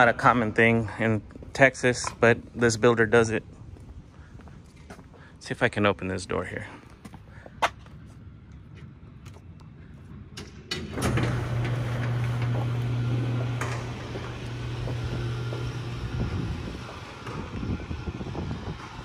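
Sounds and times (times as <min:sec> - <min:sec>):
garage door motor hum: 0:10.3 - 0:19.0.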